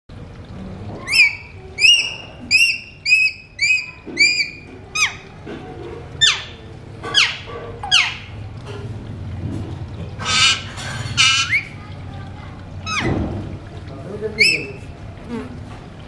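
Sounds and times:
parakeet whistling: 0:01.0 - 0:05.2, 0:06.2 - 0:06.6, 0:14.4 - 0:14.8.

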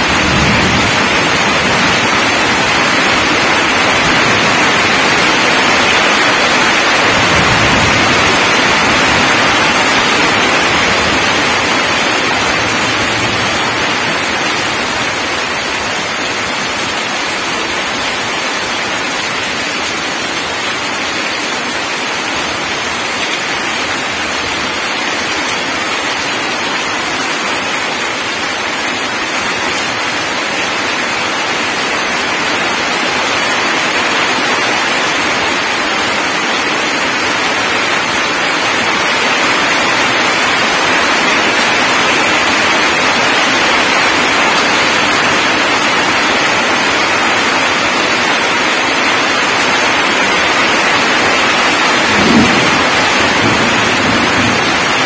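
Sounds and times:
heavy rain on gravel and puddles: 0:00.0 - 0:55.0.

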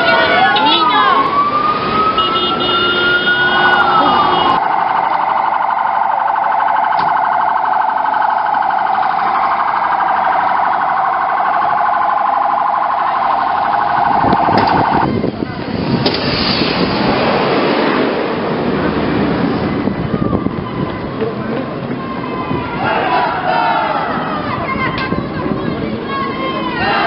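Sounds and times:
police siren pulsing: 0:00.0 - 0:15.4
loud rushing noise: 0:13.0 - 0:20.7.

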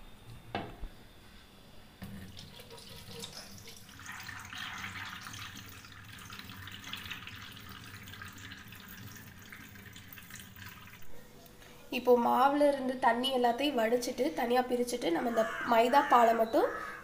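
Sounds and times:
water pouring into a steel sink: 0:02.0 - 0:11.1.

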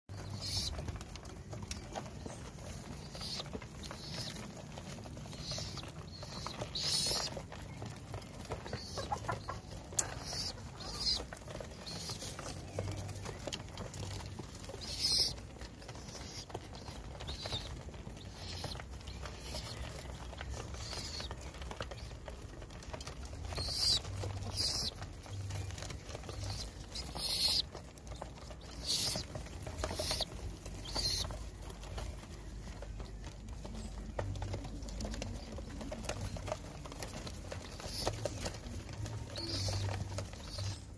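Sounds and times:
pigeons pecking grain on wood: 0:00.1 - 0:40.9.

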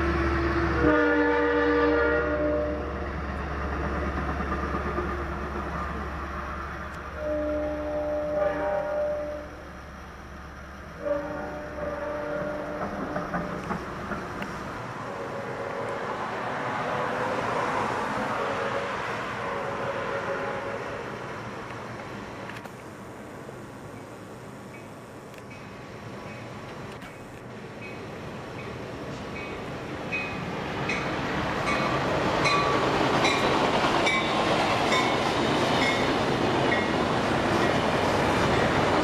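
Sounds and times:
train cars rumbling on rails: 0:00.0 - 0:39.0
train horn chord: 0:00.3 - 0:02.9, 0:07.2 - 0:09.6, 0:11.0 - 0:13.2, 0:18.3 - 0:21.0
car passing on highway: 0:13.4 - 0:22.5.

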